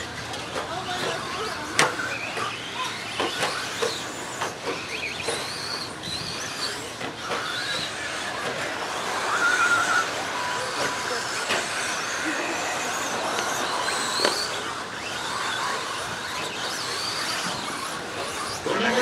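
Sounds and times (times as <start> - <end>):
rc truck motors whining: 0.0 - 19.0.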